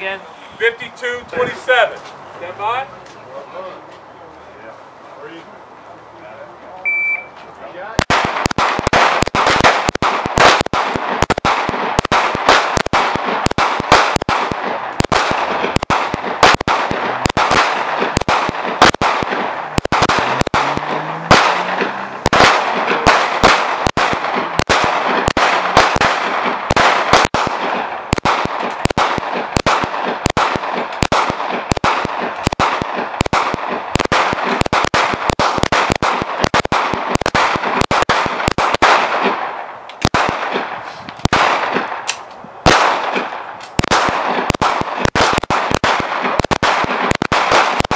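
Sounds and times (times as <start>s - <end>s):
handgun shots: 8.0s - 39.4s.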